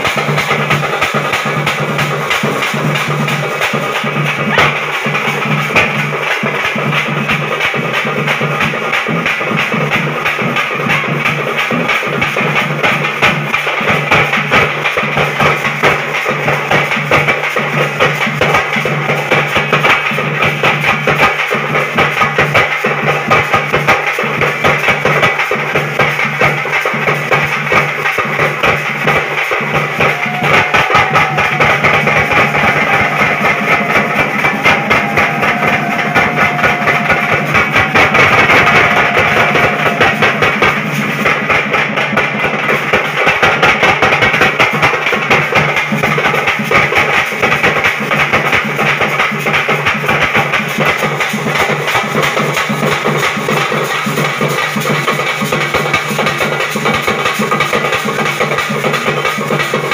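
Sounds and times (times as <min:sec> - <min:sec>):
rapid loud drumming: 0:00.0 - 0:59.9.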